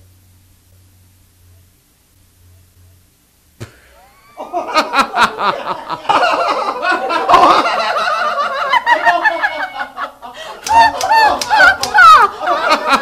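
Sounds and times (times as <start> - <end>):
man cackling with laughter: 4.0 - 13.0.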